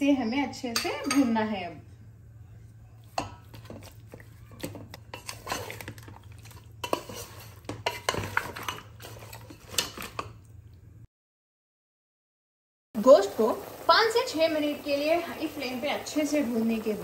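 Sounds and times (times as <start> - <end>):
metal spatula scraping pot: 3.2 - 10.3.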